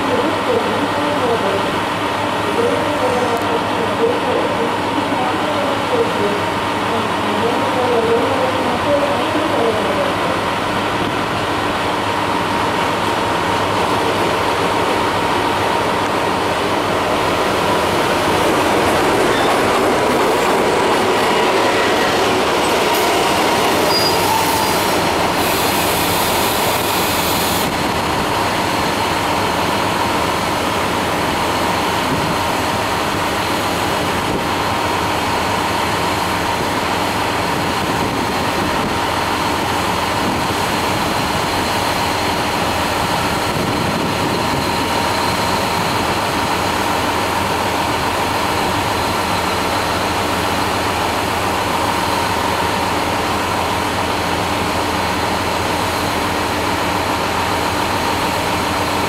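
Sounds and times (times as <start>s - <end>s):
diesel train running: 0.0s - 59.0s
hiss: 24.0s - 27.8s.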